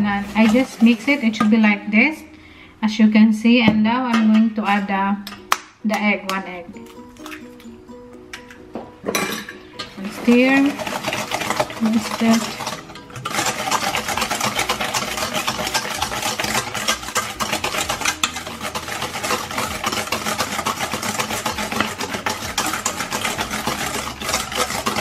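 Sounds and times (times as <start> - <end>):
whisk scraping a metal bowl: 0.0 - 1.8, 9.8 - 25.0.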